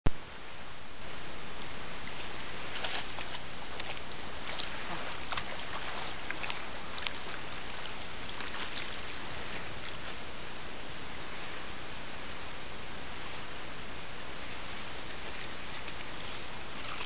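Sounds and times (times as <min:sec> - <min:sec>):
small sharp splashes: 0:02.0 - 0:09.2, 0:15.3 - 0:17.0
dog splashing through water: 0:02.2 - 0:09.2.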